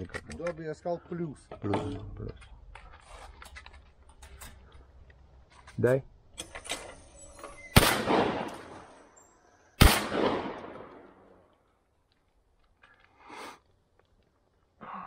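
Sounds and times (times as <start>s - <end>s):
shotgun shots echoing: 7.7s - 9.0s, 9.8s - 11.4s.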